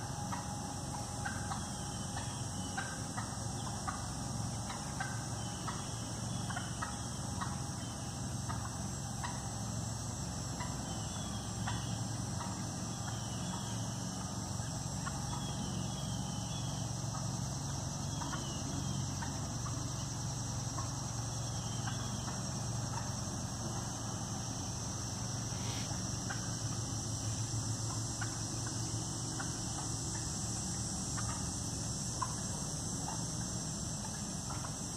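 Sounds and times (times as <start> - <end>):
steady high hiss: 0.0 - 34.9
turkeys clucking: 0.0 - 34.9.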